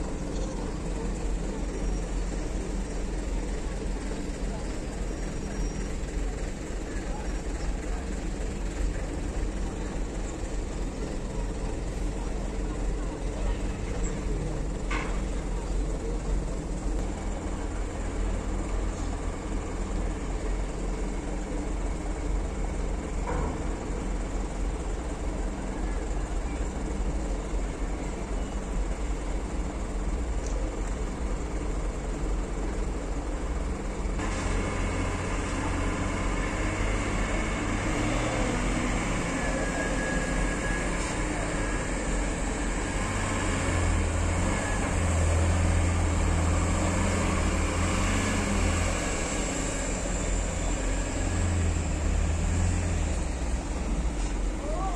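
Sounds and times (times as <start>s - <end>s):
truck diesel engine rumbling: 0.0s - 54.9s.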